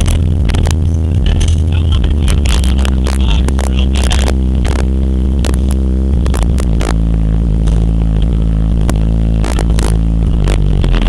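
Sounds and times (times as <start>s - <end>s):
buzzing rattles: 0.0s - 11.0s
deep bass from subwoofers: 0.0s - 11.0s.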